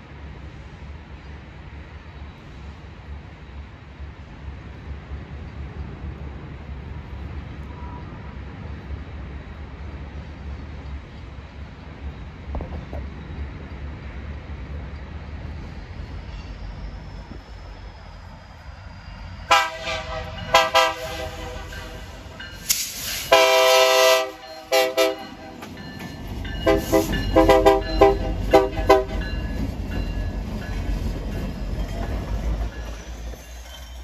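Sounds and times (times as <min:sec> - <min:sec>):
locomotive air horn blasts: 0:19.5 - 0:22.3, 0:23.3 - 0:25.6, 0:26.6 - 0:29.2.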